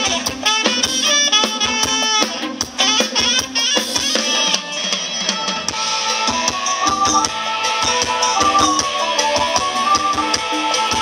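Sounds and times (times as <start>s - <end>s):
live band dance tune: 0.0s - 11.0s
saxophone melody: 0.0s - 11.0s
steady drum beat: 0.0s - 11.0s.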